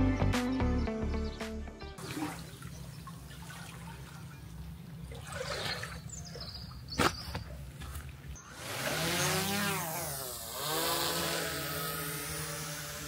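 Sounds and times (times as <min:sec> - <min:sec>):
liquid pouring and trickling: 0:02.0 - 0:06.9.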